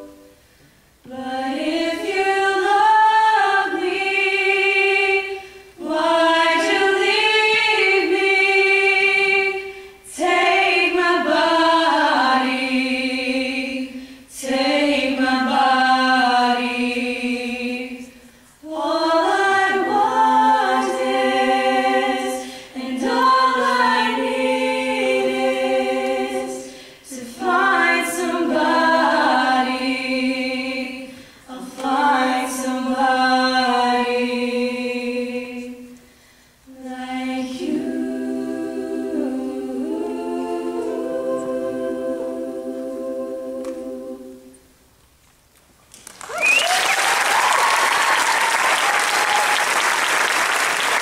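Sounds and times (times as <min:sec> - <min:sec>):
female a cappella group singing: 0:01.0 - 0:44.8
audience applause: 0:46.0 - 0:51.0.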